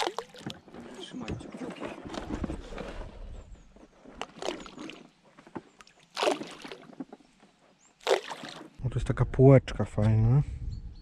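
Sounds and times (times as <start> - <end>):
oars splashing in water: 0.0 - 1.1, 4.0 - 7.3, 7.9 - 8.8.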